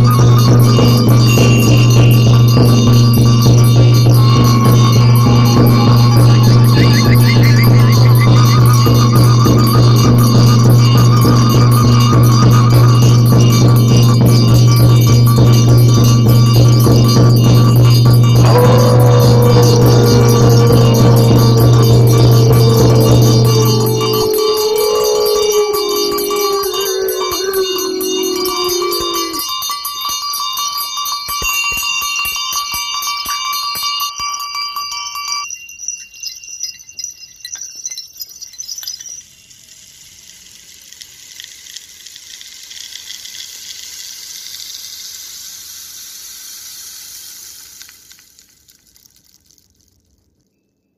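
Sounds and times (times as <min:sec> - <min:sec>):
wavering tone: 0:00.0 - 0:29.6
ritual bells and jingles ringing: 0:00.0 - 0:39.8
soft hiss: 0:39.2 - 0:49.2.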